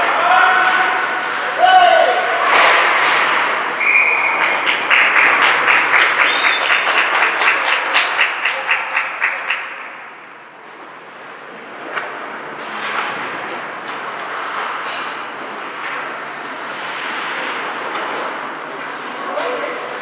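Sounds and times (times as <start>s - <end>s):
short whistle: 3.8s - 4.6s, 6.2s - 6.8s
spectators clapping in rhythm: 4.1s - 10.3s.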